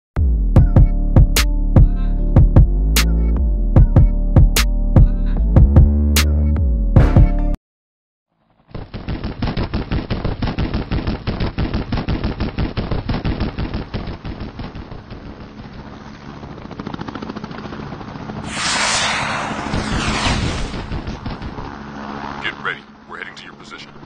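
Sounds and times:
loud rushing noise: 0:18.4 - 0:21.6.

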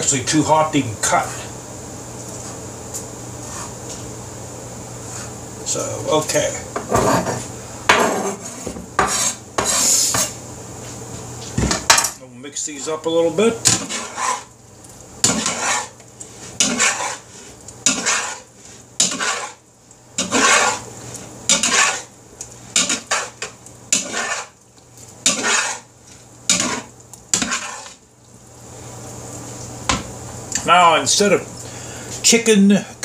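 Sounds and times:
metal spatula scraping in wooden bowl: 0:08.1 - 0:10.3, 0:13.6 - 0:14.5, 0:15.2 - 0:19.6, 0:20.2 - 0:20.9, 0:21.5 - 0:22.1, 0:22.7 - 0:24.6, 0:25.2 - 0:25.9, 0:26.5 - 0:28.0.

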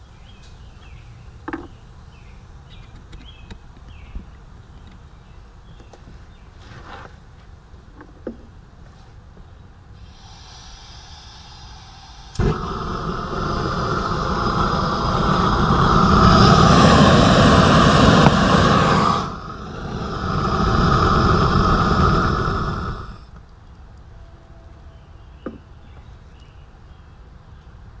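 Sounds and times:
torch flame roaring: 0:10.0 - 0:23.3.

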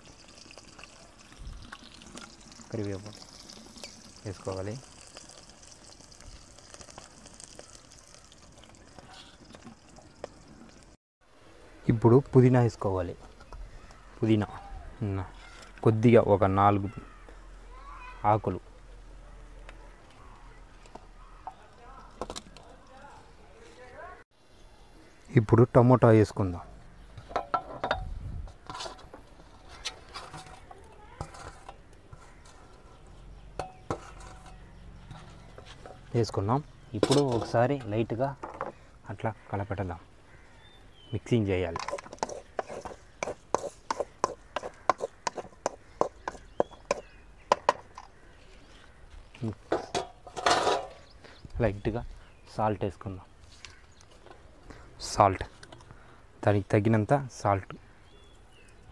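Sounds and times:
onions frying: 0:00.0 - 0:11.0
pan and utensil clinking: 0:49.7 - 0:51.0.

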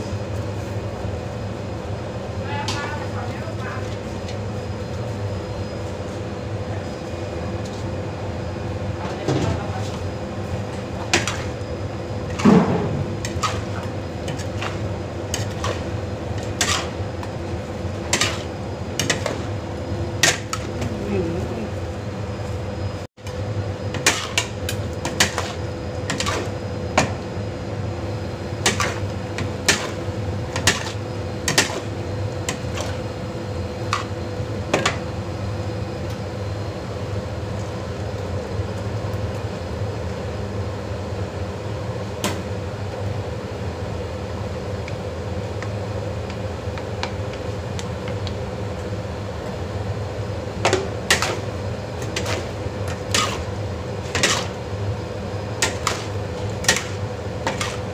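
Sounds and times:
steady kitchen hum: 0:00.0 - 0:57.9.

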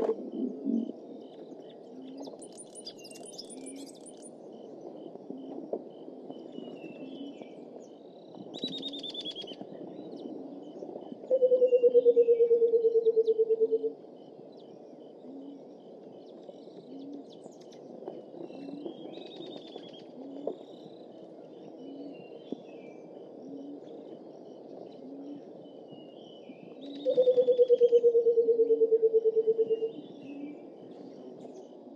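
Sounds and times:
small birds chirping: 0:00.0 - 0:27.4.

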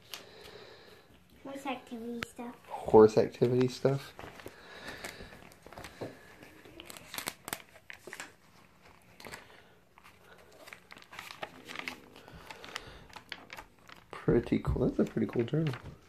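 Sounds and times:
paper pages rustling: 0:03.4 - 0:16.0.

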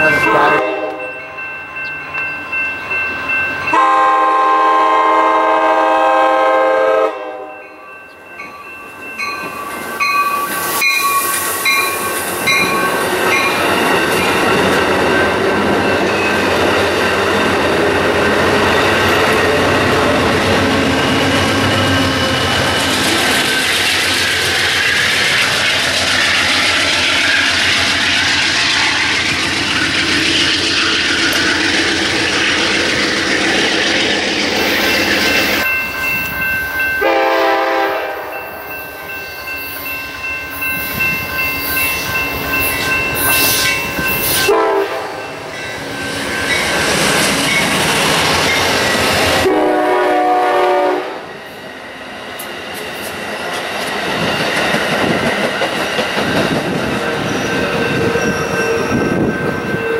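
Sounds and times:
diesel locomotive rumbling: 0:00.0 - 0:07.4, 0:08.1 - 0:59.9
train air horn: 0:00.5 - 0:01.0, 0:03.7 - 0:07.6, 0:37.0 - 0:38.5, 0:44.4 - 0:45.2, 0:49.4 - 0:51.3
train wheels clicking on rails: 0:09.2 - 0:37.1, 0:39.3 - 0:44.9, 0:51.4 - 0:59.9.

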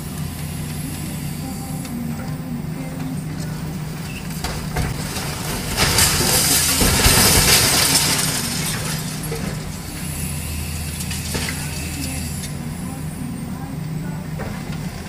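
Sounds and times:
excavator diesel engine running: 0:00.0 - 0:15.0
concrete rubble crashing down: 0:03.4 - 0:12.6.

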